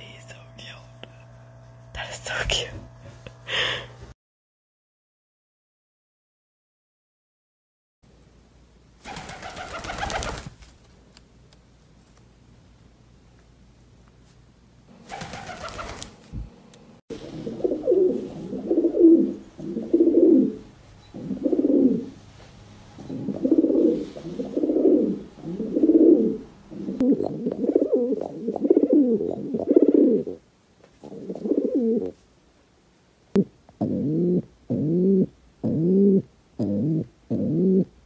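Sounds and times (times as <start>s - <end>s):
pigeon cooing: 17.1s - 22.2s, 23.0s - 30.4s, 31.0s - 32.2s, 33.4s - 38.0s.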